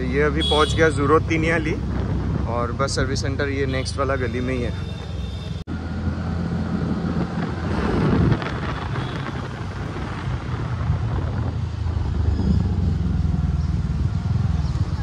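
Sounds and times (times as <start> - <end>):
wind on microphone: 1.3 - 3.1, 6.6 - 15.0.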